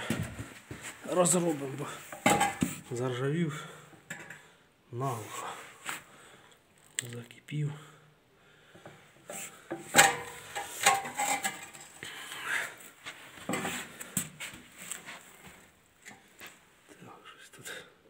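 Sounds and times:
metal parts clanking: 0:09.9 - 0:12.0.

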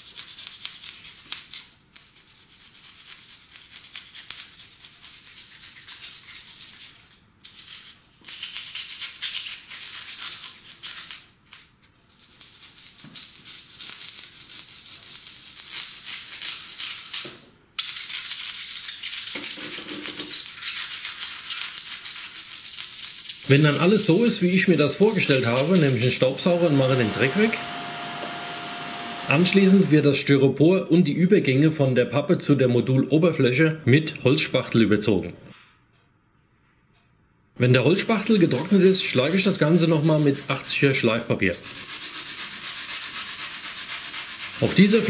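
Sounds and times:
rasp scraping foam: 0:18.0 - 0:30.0, 0:41.6 - 0:45.0.

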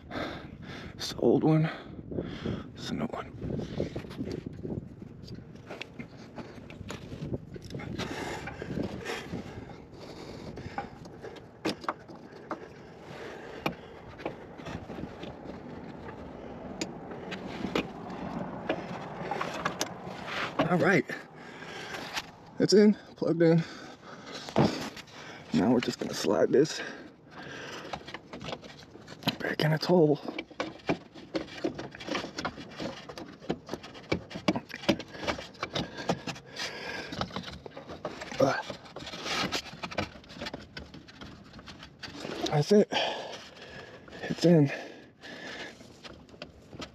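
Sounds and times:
plastic valve clicking and scraping: 0:05.2 - 0:22.6, 0:27.2 - 0:46.9.

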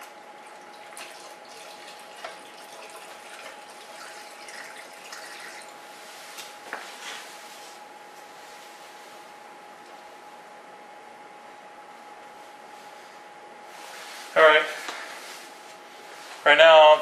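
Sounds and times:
liquid glugging from a jug: 0:00.4 - 0:05.8.

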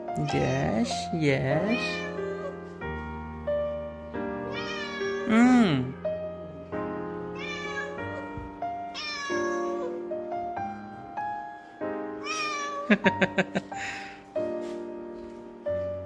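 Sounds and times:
background piano music: 0:00.0 - 0:16.0
cat meowing: 0:00.1 - 0:02.6, 0:04.4 - 0:06.0, 0:07.2 - 0:10.1, 0:12.2 - 0:13.0.

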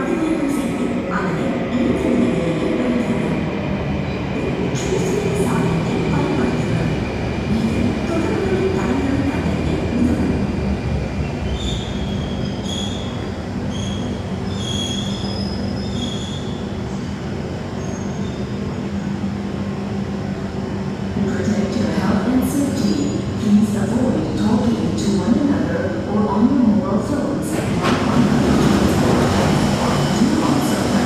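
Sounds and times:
train rumbling: 0:00.0 - 0:31.0.

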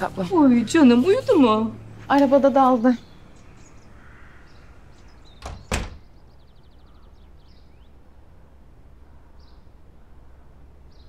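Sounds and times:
door shutting and latching: 0:05.3 - 0:06.1.

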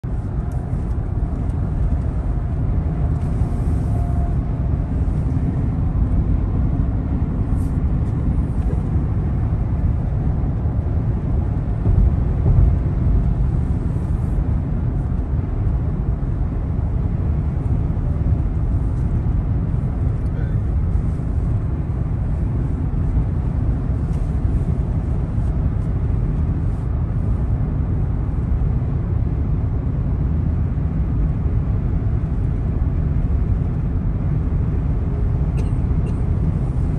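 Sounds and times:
road and tyre rumble in car: 0:00.0 - 0:36.9.

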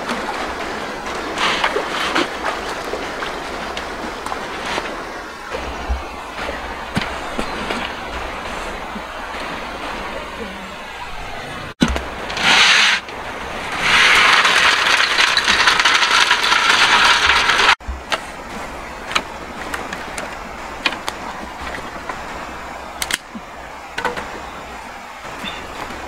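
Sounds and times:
wood fire crackling: 0:12.0 - 0:23.9
sticks being handled: 0:13.7 - 0:22.2
snail shells rattling in metal wok: 0:13.8 - 0:17.8.

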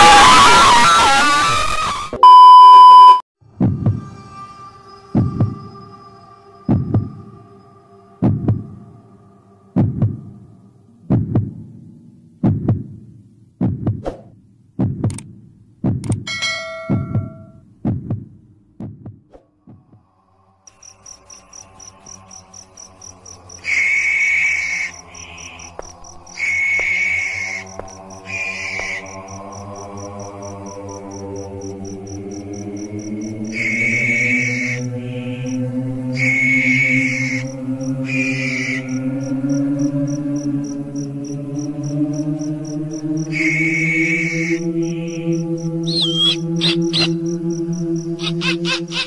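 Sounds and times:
loud higher tone: 0:02.2 - 0:03.2, 0:45.9 - 0:47.2
heartbeat thumps: 0:03.6 - 0:04.0, 0:05.2 - 0:05.6, 0:06.7 - 0:07.2, 0:08.2 - 0:08.8, 0:09.8 - 0:10.3, 0:11.0 - 0:11.8, 0:12.4 - 0:16.3, 0:16.9 - 0:20.1
steady droning tone: 0:19.8 - 0:49.0
high fast-pulsing chirp: 0:43.4 - 0:49.0.

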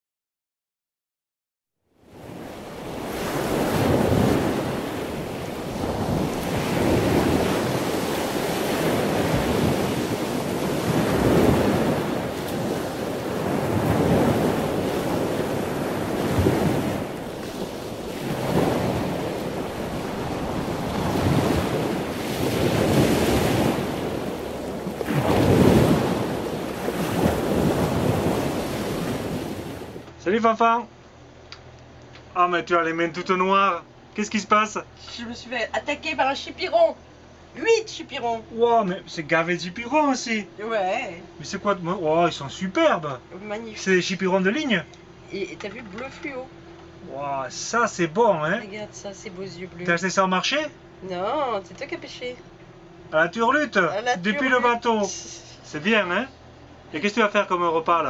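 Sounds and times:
sea waves washing in: 0:02.0 - 0:30.1.

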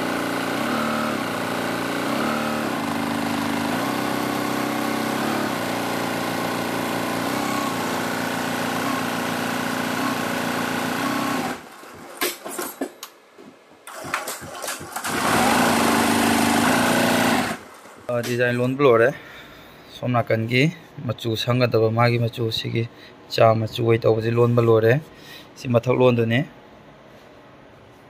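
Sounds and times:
embroidery machine stitching: 0:00.0 - 0:12.4, 0:13.9 - 0:18.1.

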